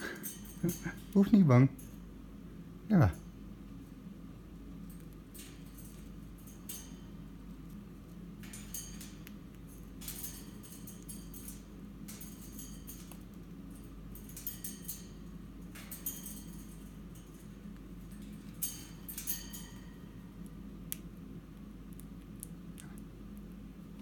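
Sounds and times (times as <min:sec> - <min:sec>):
steady low hum: 0:00.0 - 0:24.0
parrot cracking seeds: 0:04.9 - 0:23.6.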